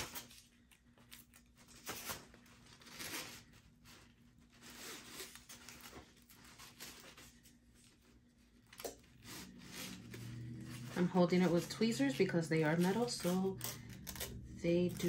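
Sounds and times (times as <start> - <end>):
tape being peeled off metal: 12.7 - 15.0.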